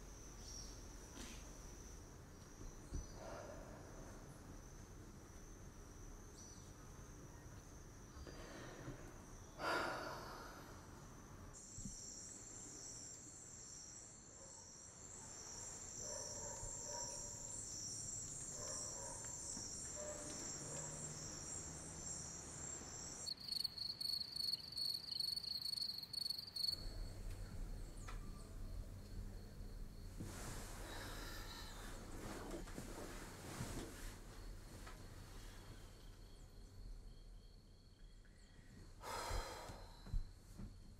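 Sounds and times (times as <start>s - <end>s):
crickets chirping: 0.0s - 40.9s.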